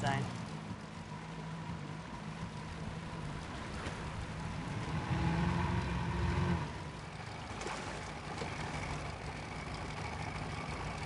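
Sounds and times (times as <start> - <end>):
boat engine humming: 0.0 - 11.0.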